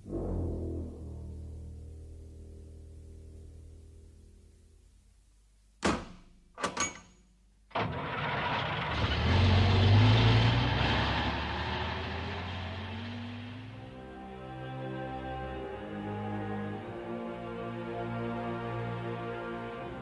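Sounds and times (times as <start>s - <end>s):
orchestral music: 0.0s - 3.1s, 12.1s - 20.0s
truck rumble with rushing hiss: 7.8s - 14.0s.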